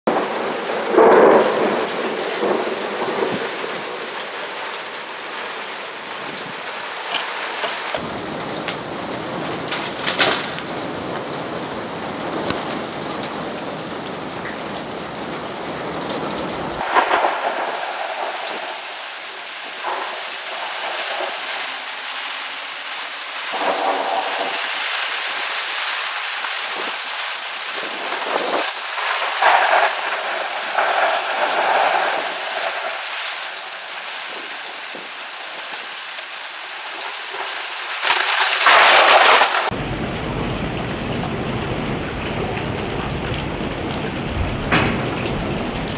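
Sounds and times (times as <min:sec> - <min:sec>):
heavy rain falling: 0:00.0 - 0:45.9
thunder rolling: 0:00.1 - 0:06.8, 0:16.8 - 0:25.6, 0:26.6 - 0:35.7, 0:37.0 - 0:45.9.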